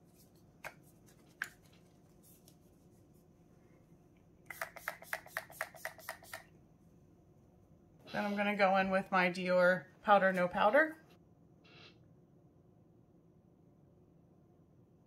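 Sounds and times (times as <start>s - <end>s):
hissing spray bottle mists: 4.5s - 6.5s.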